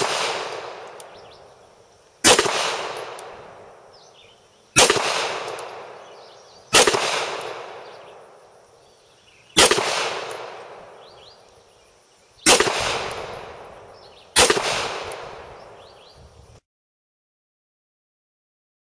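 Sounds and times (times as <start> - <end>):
pistol shots echoing: 0.0 - 1.5, 2.2 - 3.9, 4.8 - 8.4, 9.6 - 11.3, 12.4 - 15.9.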